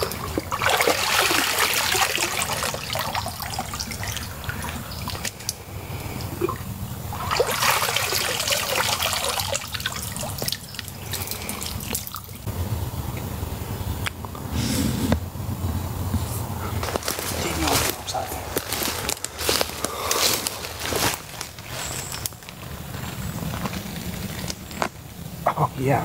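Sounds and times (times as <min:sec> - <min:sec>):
hands splashing in water: 0:00.0 - 0:05.6, 0:06.4 - 0:12.3
water dripping and trickling: 0:00.0 - 0:12.5.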